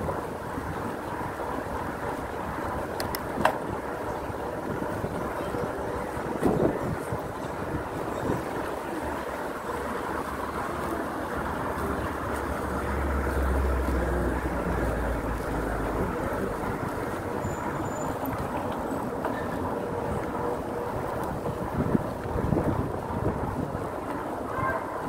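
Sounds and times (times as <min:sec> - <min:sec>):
tyres rolling on asphalt: 0:00.0 - 0:25.0
wind noise on microphone: 0:00.0 - 0:25.0.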